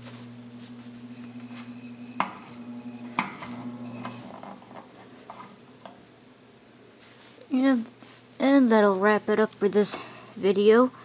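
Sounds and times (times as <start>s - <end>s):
box fan motor humming: 0.0s - 6.6s.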